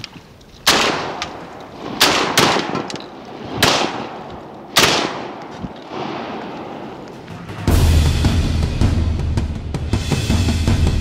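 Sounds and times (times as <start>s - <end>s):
shotgun shots echoing: 0.6s - 7.1s.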